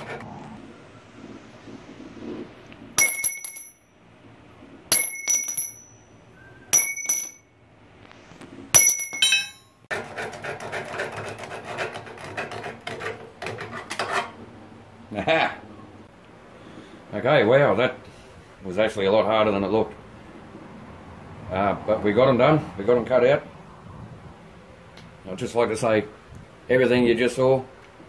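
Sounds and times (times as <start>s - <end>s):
steel bars clinking on concrete: 3.0s - 3.9s, 4.9s - 6.1s, 6.7s - 7.5s, 8.8s - 9.8s
disc rasping on steel bar: 9.4s - 14.4s.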